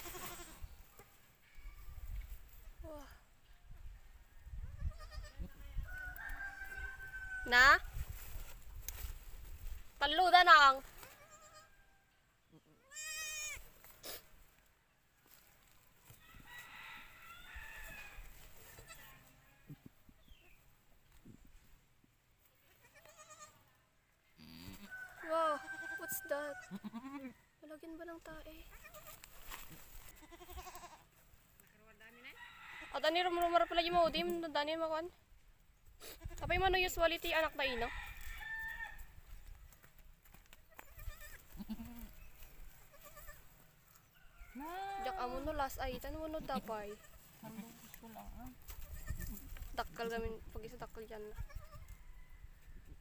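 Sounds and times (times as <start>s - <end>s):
goats bleating: 0.0s - 0.6s, 12.8s - 13.6s, 22.8s - 23.6s, 26.4s - 27.3s, 30.2s - 31.1s, 40.7s - 42.2s, 42.9s - 43.4s
goat bleating: 0.0s - 0.7s, 4.7s - 5.6s, 11.0s - 11.7s, 12.5s - 13.7s, 18.6s - 19.3s, 22.7s - 23.7s, 24.4s - 24.9s, 25.5s - 27.4s, 28.6s - 29.3s, 30.1s - 31.2s, 40.7s - 43.6s, 44.6s - 45.5s, 46.3s - 48.0s, 48.7s - 49.6s, 51.2s - 51.9s.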